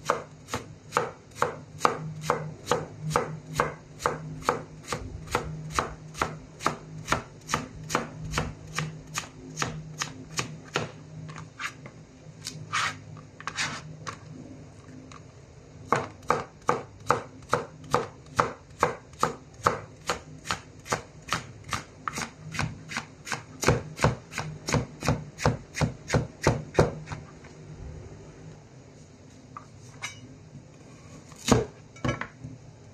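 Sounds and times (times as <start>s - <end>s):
knife chopping on cutting board: 0.0s - 10.9s, 31.4s - 31.7s.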